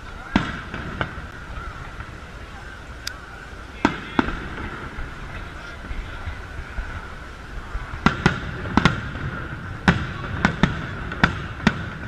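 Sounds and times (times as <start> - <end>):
fireworks bangs: 0.0 - 2.8, 3.6 - 12.0.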